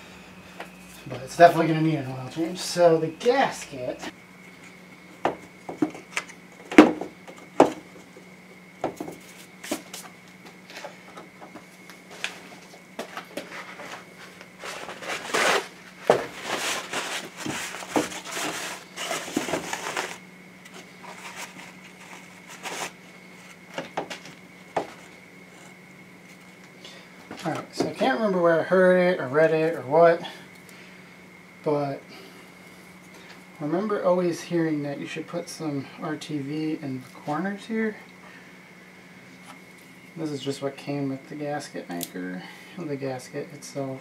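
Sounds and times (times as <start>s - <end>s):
faint steady hum: 0.0s - 44.0s
rustling and crinkling: 8.9s - 27.8s.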